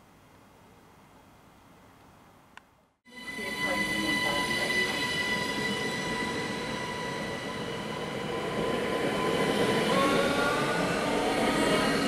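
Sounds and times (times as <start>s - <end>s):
electric train whine and rumble: 3.1s - 12.0s.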